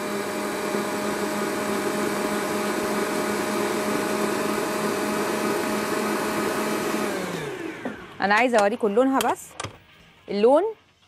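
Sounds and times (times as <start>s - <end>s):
stand mixer motor whirring: 0.0s - 8.2s.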